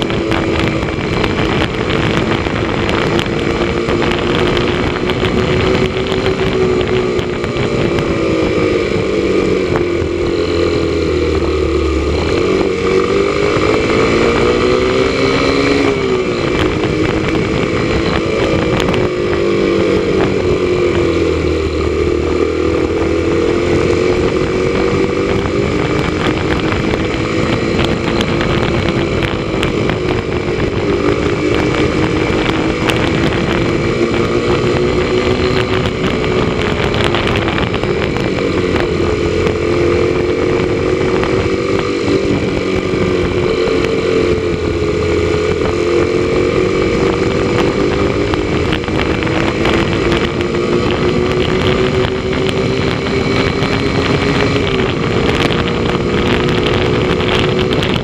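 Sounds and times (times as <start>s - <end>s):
motorcycle engine cruising: 0.0s - 58.0s
road and wind noise: 0.0s - 58.0s.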